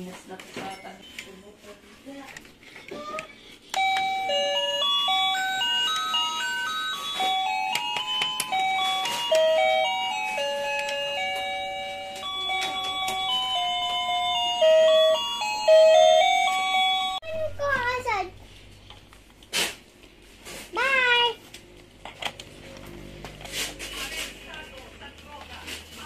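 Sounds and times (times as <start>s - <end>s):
electronic beeping toy melody: 3.7s - 17.4s.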